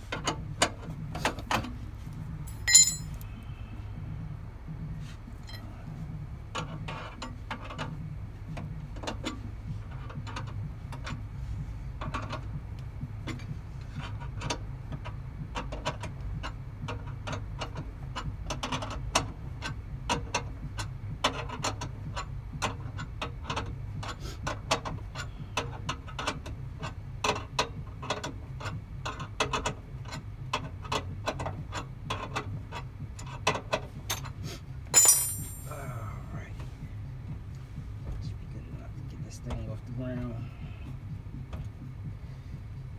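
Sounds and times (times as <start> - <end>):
steady low hum: 0.0 - 42.9
hand tool clicking and rattling: 34.9 - 35.8.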